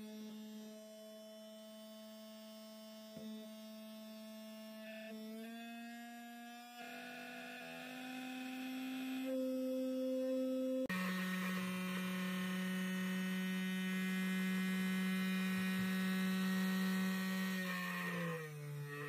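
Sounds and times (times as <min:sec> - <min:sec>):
electric motor whine: 0:00.0 - 0:19.0.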